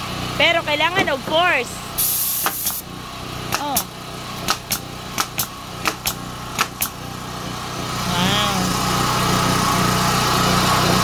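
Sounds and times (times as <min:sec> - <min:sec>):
small engine running: 0:00.0 - 0:11.0
nail gun firing: 0:02.0 - 0:02.8, 0:03.4 - 0:07.0.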